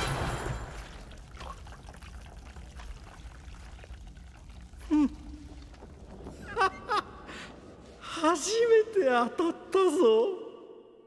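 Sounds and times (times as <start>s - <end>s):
blood pouring and trickling: 0.0s - 6.4s.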